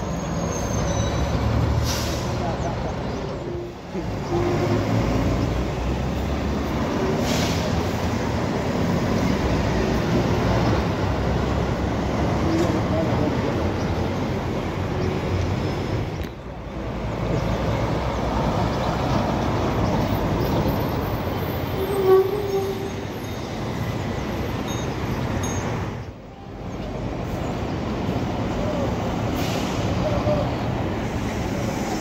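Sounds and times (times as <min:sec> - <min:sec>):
bus diesel engines passing: 0:00.0 - 0:32.0
street traffic: 0:00.0 - 0:32.0.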